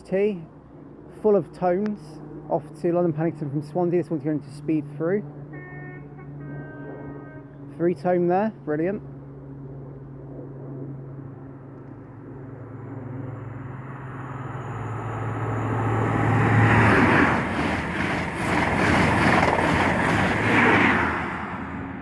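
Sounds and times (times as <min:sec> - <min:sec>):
train engine note: 0:01.1 - 0:09.3, 0:11.0 - 0:22.0
train coaches rushing and rattling: 0:16.9 - 0:21.3.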